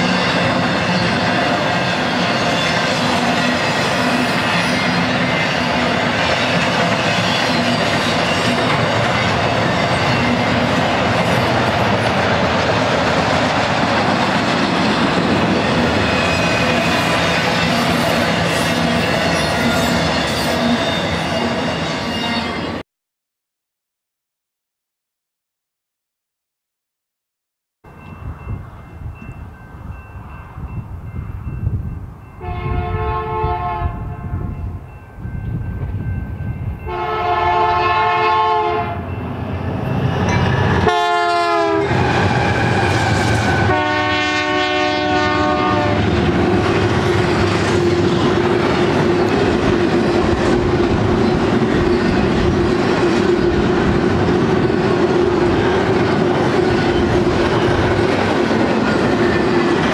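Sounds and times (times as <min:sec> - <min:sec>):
diesel locomotive engines passing: 0:00.0 - 0:22.8, 0:27.9 - 0:59.9
train cars rumbling and clattering: 0:00.0 - 0:22.8, 0:27.9 - 0:59.9
locomotive air horn blasts: 0:32.4 - 0:34.5, 0:36.9 - 0:39.1, 0:40.8 - 0:46.1.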